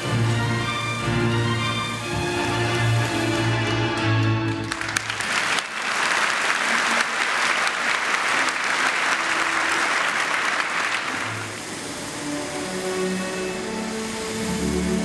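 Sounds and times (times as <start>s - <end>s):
music: 0.0s - 5.2s, 11.5s - 15.0s
audience applauding: 0.0s - 15.0s.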